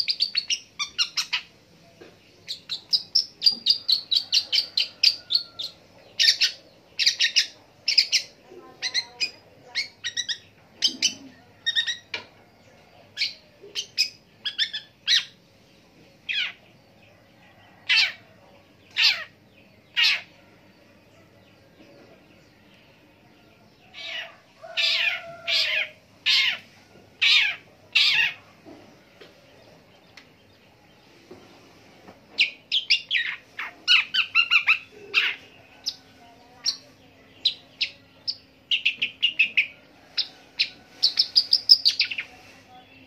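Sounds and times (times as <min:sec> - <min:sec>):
bird chirping notes: 0:00.0 - 0:12.2
bird harsh scratchy calls: 0:24.0 - 0:28.4, 0:38.7 - 0:42.6.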